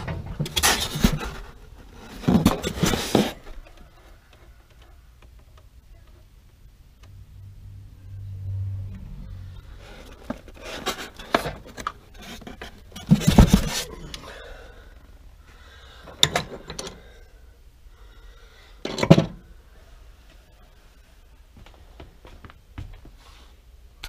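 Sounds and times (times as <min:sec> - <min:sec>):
rubbing and scraping: 0:00.0 - 0:03.7, 0:09.4 - 0:14.2.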